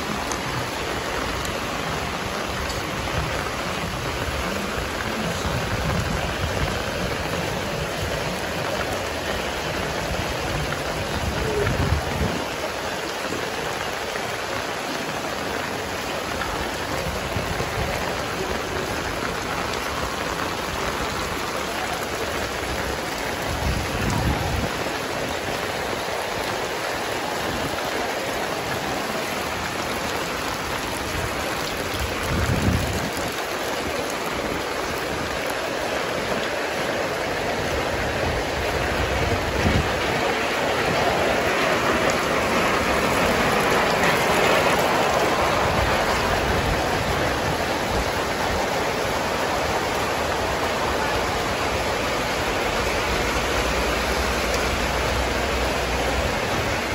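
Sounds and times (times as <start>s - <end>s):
heavy rain on street and roofs: 0.0s - 56.9s
water pouring off awning: 0.0s - 56.9s.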